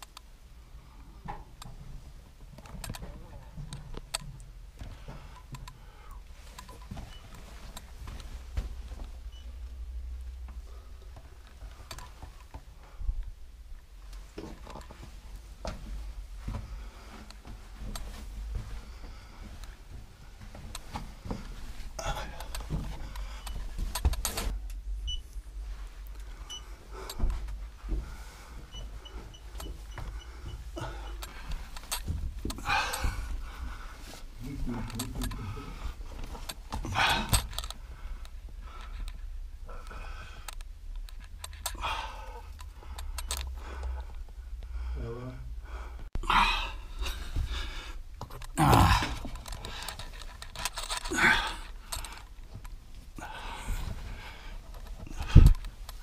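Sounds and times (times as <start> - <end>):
heavy breathing: 4.7 - 6.6, 10.5 - 13.3, 14.7 - 24.2, 26.1 - 56.0.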